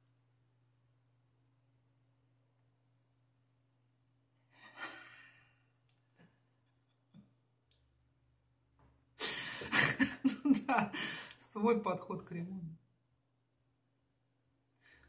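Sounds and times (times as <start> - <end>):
woman laughing loudly: 9.2 - 11.2.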